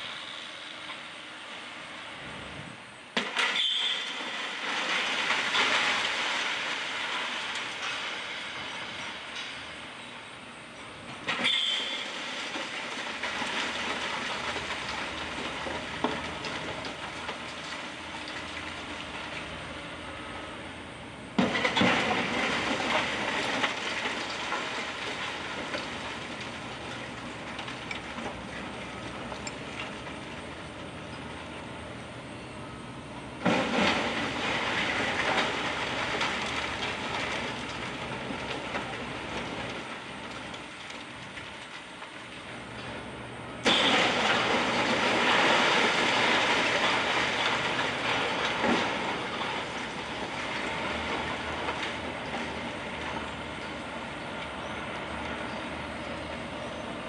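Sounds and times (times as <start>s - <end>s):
rubble clattering and rumbling: 3.2s - 10.1s, 10.7s - 57.0s.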